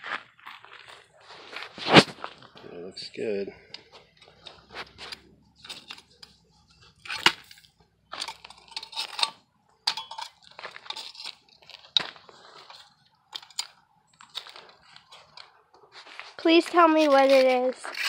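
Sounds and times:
sand scraping and crunching: 0.0 - 3.6, 15.9 - 18.0.

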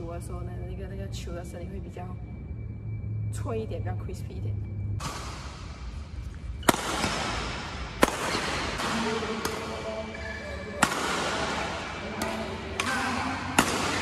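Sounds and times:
racquet hitting shuttlecock: 5.0 - 14.0.

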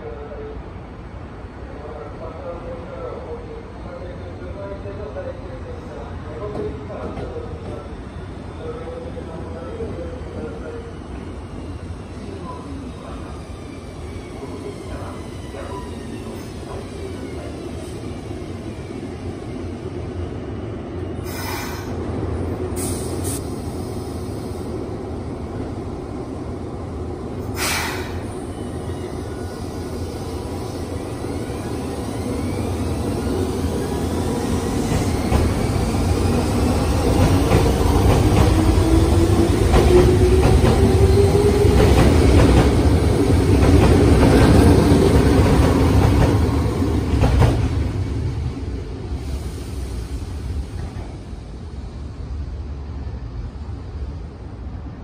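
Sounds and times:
subway train wheel and motor rumble: 0.0 - 55.0
brief high hissing: 21.2 - 22.0, 27.5 - 28.3.

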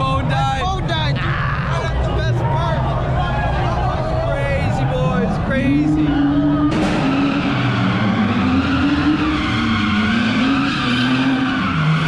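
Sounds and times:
car engine revving: 4.9 - 12.0.

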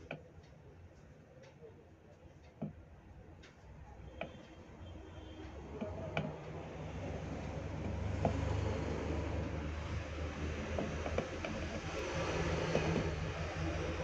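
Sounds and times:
soldering clicks and taps: 5.5 - 6.5, 9.3 - 13.3.

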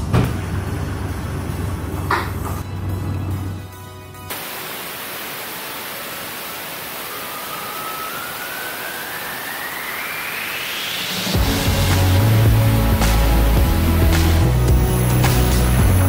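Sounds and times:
music: 2.1 - 4.3, 7.6 - 16.0
spinning bearings hiss and whine: 4.3 - 14.4.

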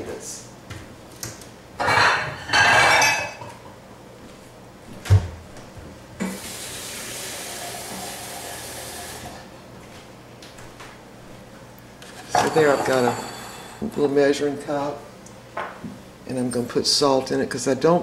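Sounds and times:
tap water filling a cup: 6.2 - 9.4.

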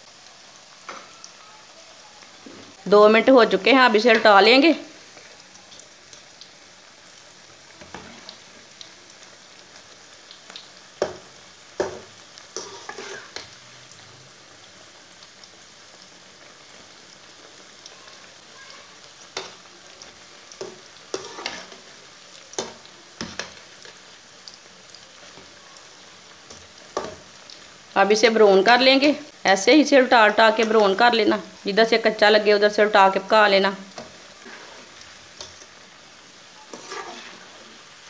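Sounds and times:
deep-frying sizzle in oil: 0.0 - 38.0
metal spoon scraping pan: 12.6 - 13.5, 20.6 - 21.8, 34.0 - 35.7, 36.6 - 37.8.

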